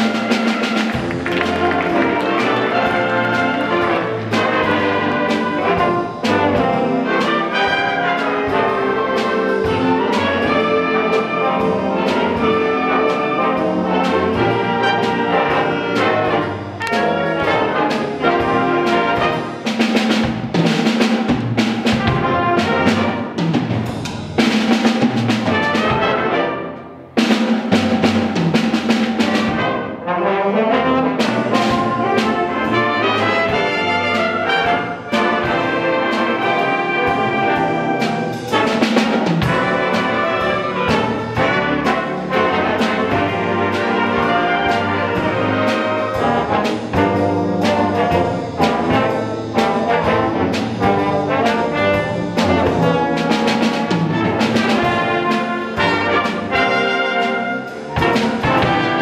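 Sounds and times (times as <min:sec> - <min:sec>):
drum hits: 0:00.0 - 0:07.3, 0:18.5 - 0:26.1, 0:27.2 - 0:29.7, 0:31.2 - 0:59.0
concert band playing: 0:00.0 - 0:59.0.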